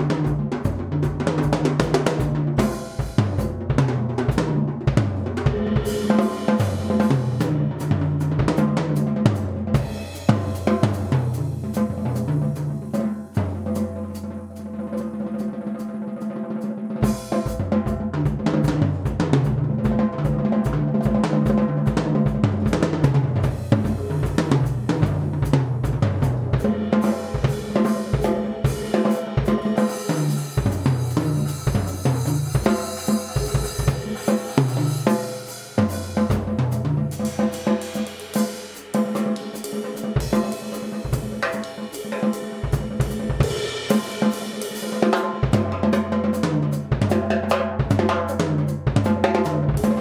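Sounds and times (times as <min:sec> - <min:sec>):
drum kit funk groove: 0:00.0 - 0:15.8, 0:17.0 - 0:50.0
bass line: 0:22.0 - 0:37.7.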